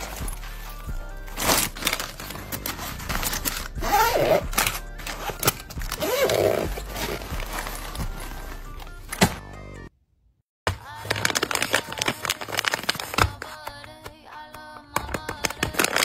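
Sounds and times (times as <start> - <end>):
cloth rustling: 0.0 - 9.4
soft background music: 0.0 - 9.9
zipper drawn shut: 1.3 - 9.4.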